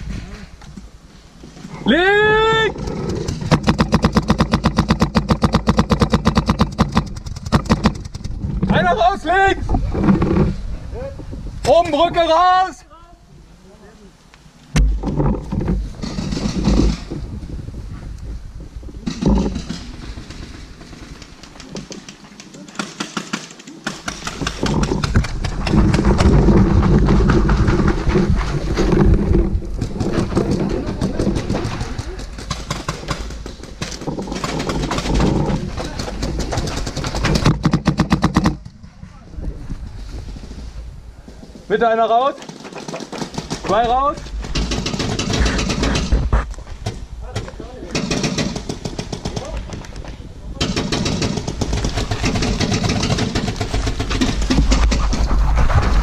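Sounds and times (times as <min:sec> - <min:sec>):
wind rumble on camera: 0:00.0 - 0:12.2, 0:14.8 - 0:22.0, 0:24.3 - 0:41.7, 0:48.9 - 0:56.0
person yelling: 0:01.8 - 0:02.8
paintball marker rapid firing: 0:03.4 - 0:08.4, 0:19.5 - 0:26.2, 0:35.9 - 0:38.7, 0:42.4 - 0:46.2, 0:47.9 - 0:49.9, 0:50.6 - 0:55.8.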